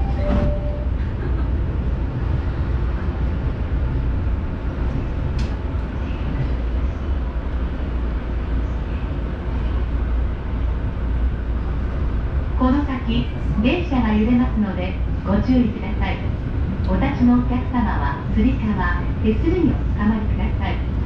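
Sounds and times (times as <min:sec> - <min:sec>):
train passing: 0:00.0 - 0:06.5
train carriage rumble: 0:00.0 - 0:21.0.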